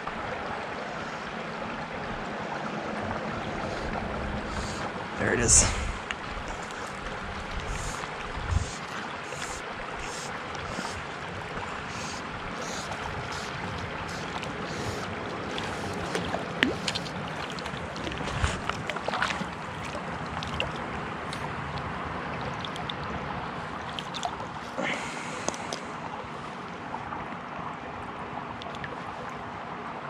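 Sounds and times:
fish splashing in water: 6.4s - 26.0s.

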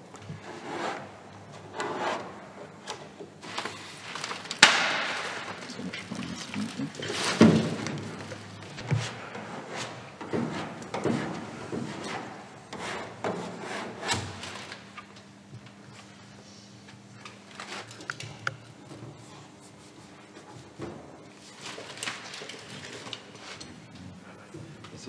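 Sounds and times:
paper rustling and rubbing: 3.4s - 10.0s.

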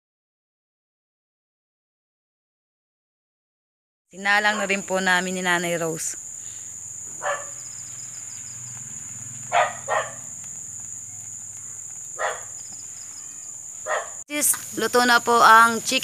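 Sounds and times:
insects trilling: 4.2s - 16.0s
dog barking: 4.5s - 4.8s, 7.1s - 7.8s, 9.4s - 10.4s, 11.1s - 12.7s, 13.8s - 14.2s.

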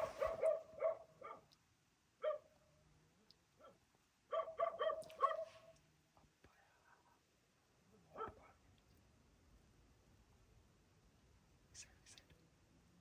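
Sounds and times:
dog barking: 0.0s - 1.5s, 2.2s - 2.5s, 3.6s - 5.7s, 8.1s - 8.5s.

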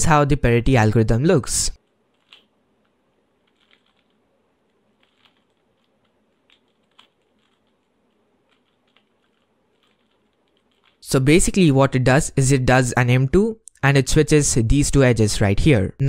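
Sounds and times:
puzzle cube plastic clicks: 1.8s - 11.0s.

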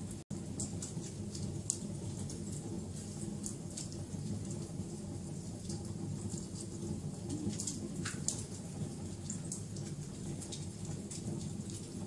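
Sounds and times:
wood fire crackling: 0.0s - 12.0s
sharp pops and snaps: 0.4s - 2.6s, 5.6s - 12.0s.

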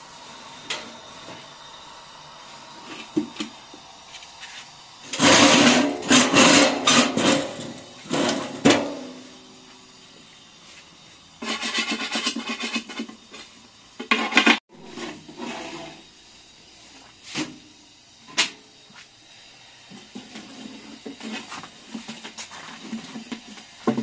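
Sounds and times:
metal blade scraping wooden board: 11.4s - 13.1s.

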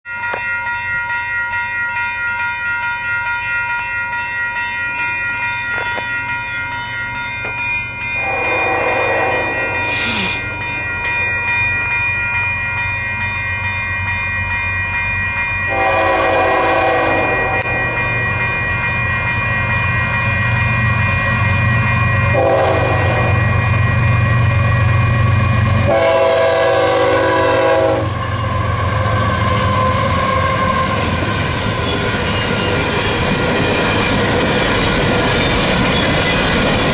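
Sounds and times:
crossing bell ringing: 0.0s - 36.9s
locomotive air horn blasts: 8.2s - 10.6s, 15.7s - 17.7s, 22.3s - 23.5s, 25.8s - 31.2s.

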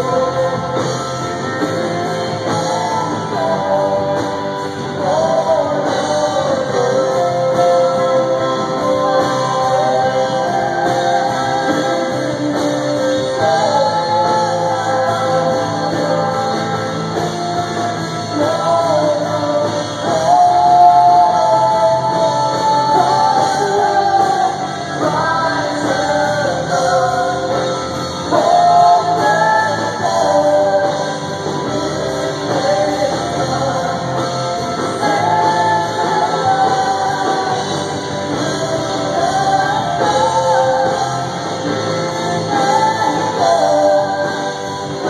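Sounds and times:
guitars and band accompaniment: 0.0s - 45.0s
voices singing a hymn together: 0.0s - 45.0s.

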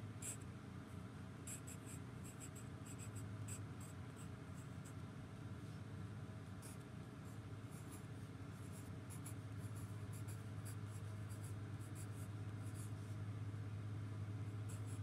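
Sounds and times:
steady low hum: 0.0s - 15.0s
pencil scratching on paper: 1.5s - 5.0s, 7.7s - 13.2s, 14.5s - 15.0s.

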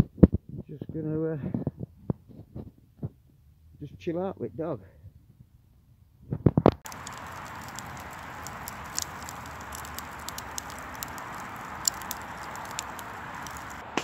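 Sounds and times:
logs burning with crackles: 6.4s - 14.0s.

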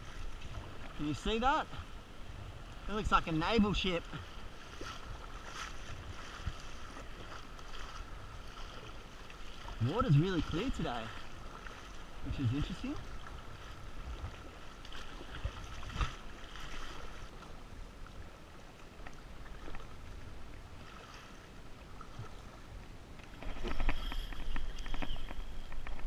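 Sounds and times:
water splashing around kayak: 0.0s - 26.0s.

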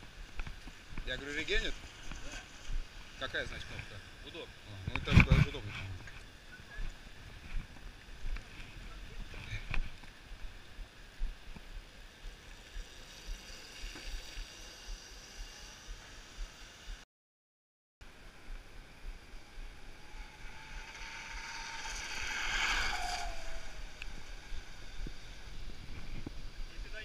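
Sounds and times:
tyres hissing on wet asphalt: 11.7s - 16.8s, 18.9s - 27.0s
vehicle passing with whine: 12.5s - 17.0s, 18.2s - 26.7s.

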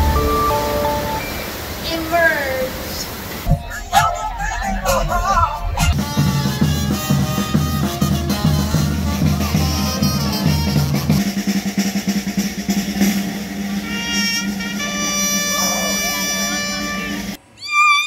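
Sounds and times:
music with drums and bass beat: 5.8s - 17.4s.

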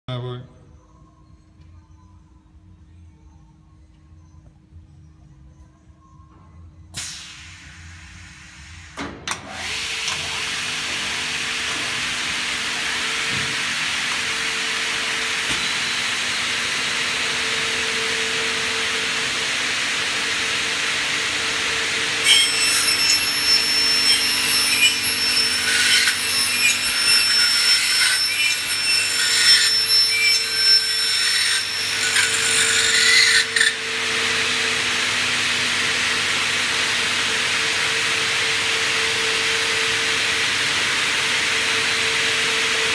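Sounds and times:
cutters screeching on metal: 22.2s - 33.8s.

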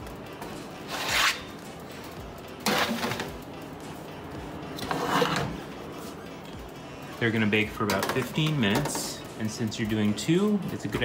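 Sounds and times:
quiet background music: 0.0s - 11.0s
metal baking sheets scraping: 0.8s - 1.5s, 2.6s - 3.3s, 4.8s - 5.6s.

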